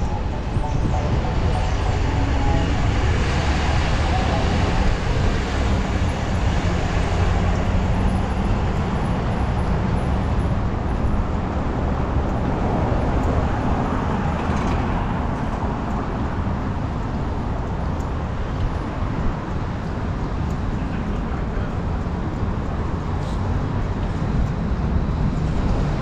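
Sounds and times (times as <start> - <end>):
cars passing nearby: 0.0 - 26.0
road rumble from bicycle: 0.0 - 26.0.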